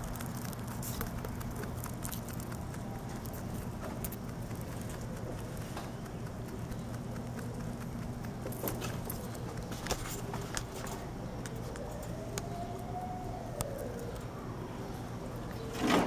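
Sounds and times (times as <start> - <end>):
sharp clicks and taps: 0.0 - 10.7
low background hum: 0.0 - 16.0.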